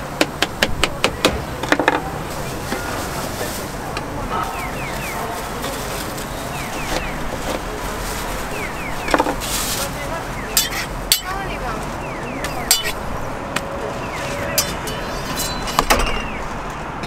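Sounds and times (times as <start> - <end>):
street traffic hum: 0.0 - 17.0
metal utensils clicking and scraping: 10.6 - 11.4, 12.6 - 13.0, 14.5 - 15.8.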